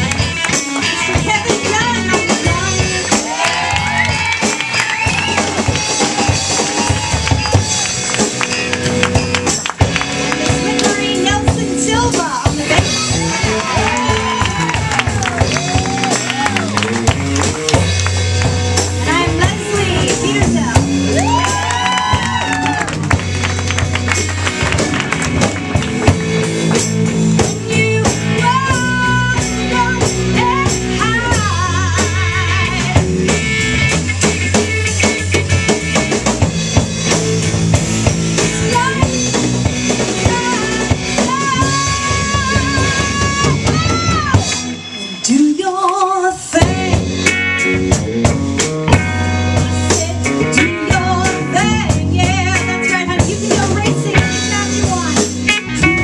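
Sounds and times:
low bass notes: 0.0s - 44.8s, 46.5s - 56.0s
drum kit: 0.0s - 56.0s
electric guitar: 0.0s - 56.0s
woman singing with vibrato: 27.5s - 33.1s, 40.2s - 44.5s, 45.1s - 47.2s, 49.9s - 55.1s.

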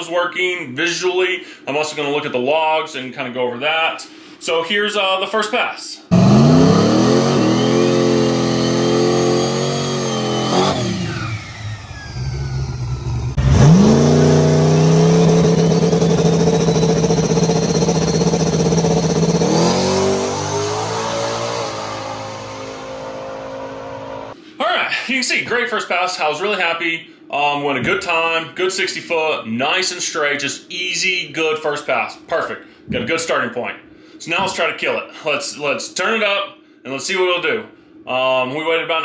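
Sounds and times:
drag car engine revving: 6.1s - 24.4s
turbo whistle: 14.0s - 20.8s.

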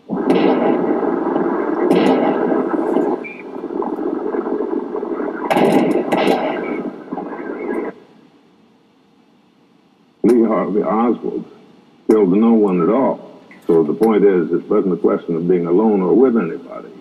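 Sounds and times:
sharp cracks: 0.0s - 8.1s
noisy old archival audio: 0.0s - 17.0s.

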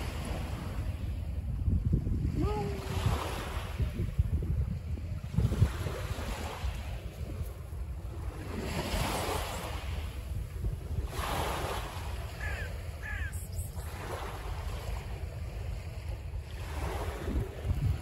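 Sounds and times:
sea waves washing on shore: 0.0s - 18.0s
wind buffeting microphone: 0.0s - 18.0s.

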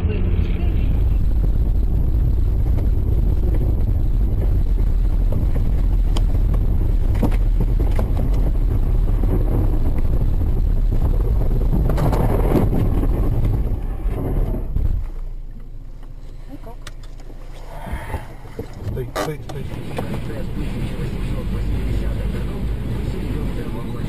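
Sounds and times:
wind noise: 0.0s - 15.5s
car cabin road rumble: 0.0s - 24.0s.

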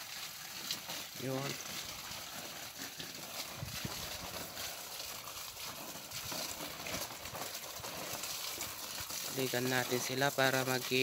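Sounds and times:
hose water splashing on leaves: 0.0s - 11.0s.

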